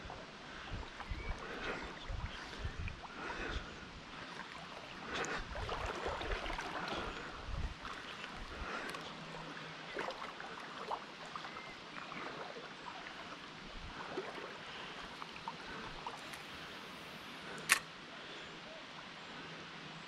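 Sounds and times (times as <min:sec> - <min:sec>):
river water rushing: 0:04.1 - 0:17.3
sharp click: 0:17.6 - 0:17.9.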